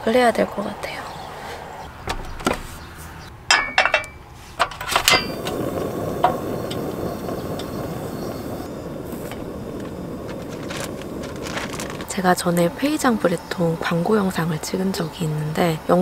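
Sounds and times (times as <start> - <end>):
metal pan clanking: 3.5 - 5.4
gas burner flame hissing: 4.3 - 16.0
stove ignition click: 4.7 - 11.3.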